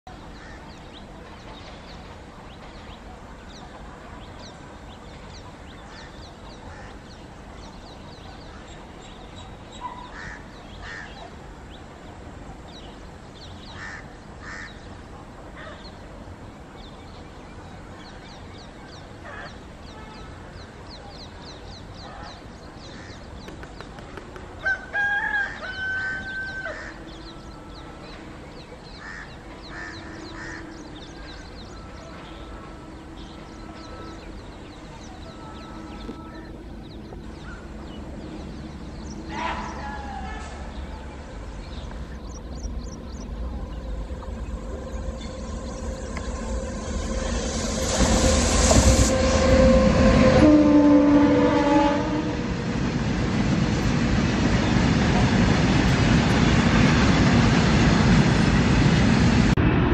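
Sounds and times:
birds chirping: 0.2s - 50.6s
locomotive horn blasts: 43.8s - 52.5s.

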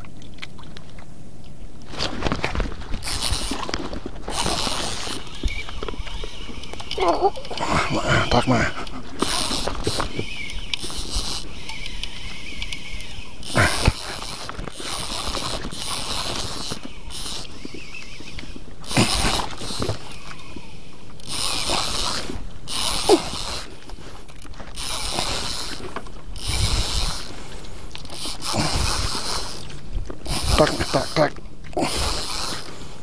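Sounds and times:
handling noise: 1.8s - 7.9s
fishing reel cranking: 2.2s - 33.0s.

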